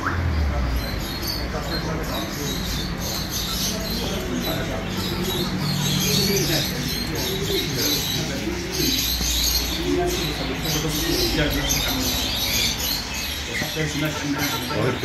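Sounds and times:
birds chattering: 0.0 - 15.0
pigeons cooing: 0.0 - 15.0.

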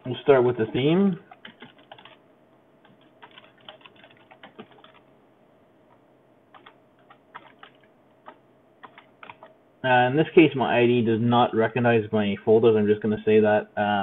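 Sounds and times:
computer keyboard typing: 0.0 - 2.2, 2.8 - 5.1, 6.5 - 9.6.

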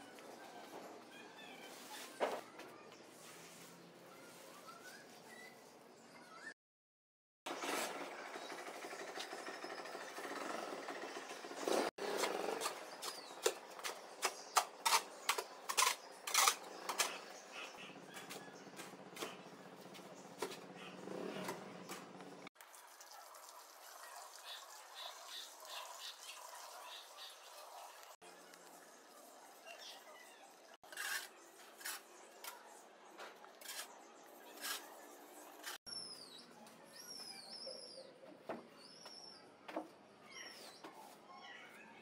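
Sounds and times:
shovel scraping on concrete: 11.8 - 19.5, 30.8 - 35.8
water pouring from hose: 22.6 - 28.0.

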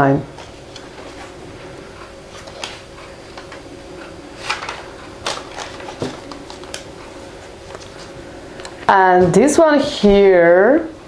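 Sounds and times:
paper pages rustling: 4.4 - 6.8.

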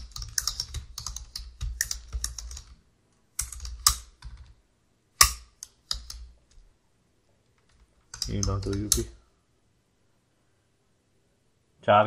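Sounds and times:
typing on computer keyboard: 0.0 - 2.8, 3.4 - 4.6, 5.2 - 6.6, 7.6 - 9.2.

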